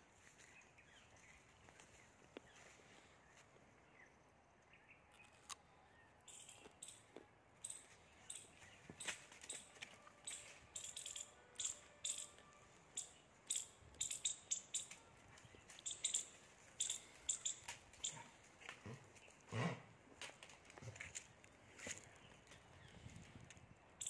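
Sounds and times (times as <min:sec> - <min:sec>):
squirrel chirping alarm calls: 0:06.3 - 0:07.0, 0:07.6 - 0:09.6, 0:10.2 - 0:15.0, 0:15.8 - 0:18.2.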